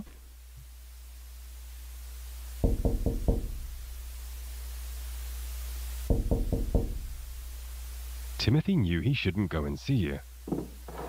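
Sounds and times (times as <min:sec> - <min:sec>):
hiss: 0:00.0 - 0:08.4
low hum: 0:00.0 - 0:08.4
knocks on a window: 0:02.6 - 0:03.6, 0:06.1 - 0:07.1.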